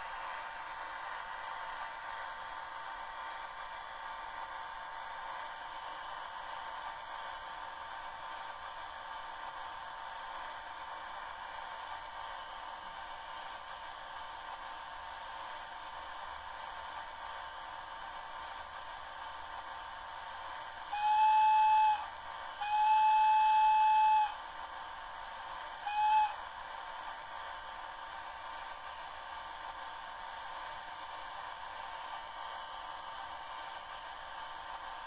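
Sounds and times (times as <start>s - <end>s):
locomotive horn through small speaker: 20.9s - 24.4s, 25.8s - 26.4s.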